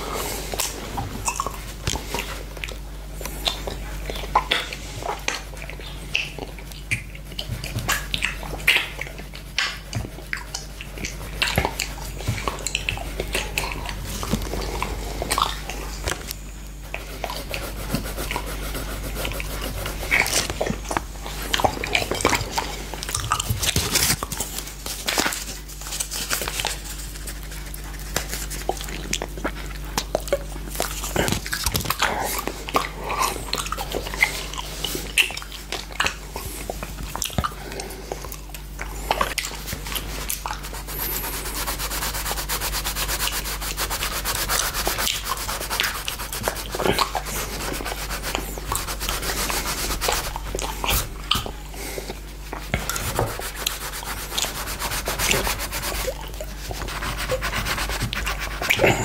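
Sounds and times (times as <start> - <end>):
pencil scratching on paper: 16.9 - 20.9, 40.5 - 51.2, 52.6 - 59.0.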